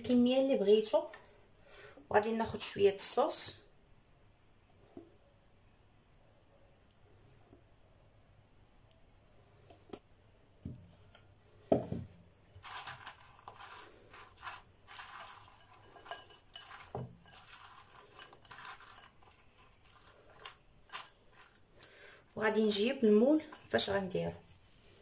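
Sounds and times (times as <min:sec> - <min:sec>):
spatula scraping glass bowl: 0:12.6 - 0:21.6, 0:23.4 - 0:24.2.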